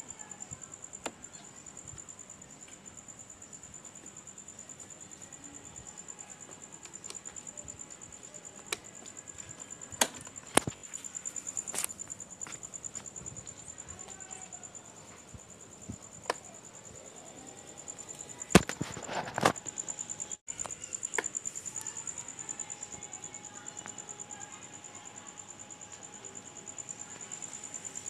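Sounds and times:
crickets chirping: 0.0s - 28.0s.

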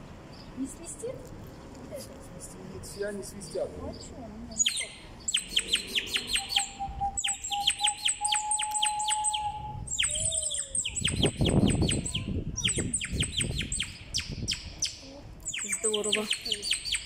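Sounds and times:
steady low whistle tone: 5.4s - 11.0s
whistle warbling trills: 5.4s - 12.3s.

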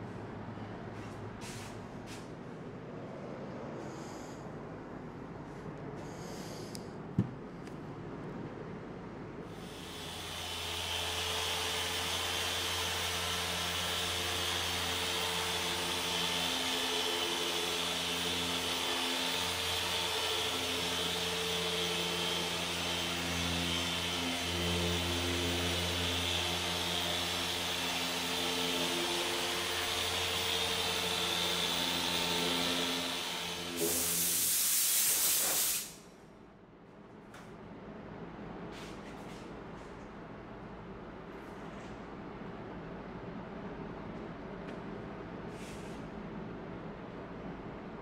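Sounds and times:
car polisher running: 9.6s - 34.2s
loud hiss burst: 33.8s - 36.1s.

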